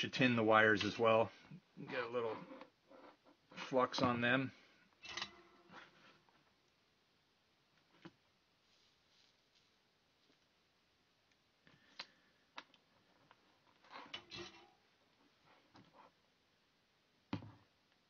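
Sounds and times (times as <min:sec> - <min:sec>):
short rustle: 0:08.6 - 0:10.3
faint clicks and taps: 0:11.2 - 0:13.8.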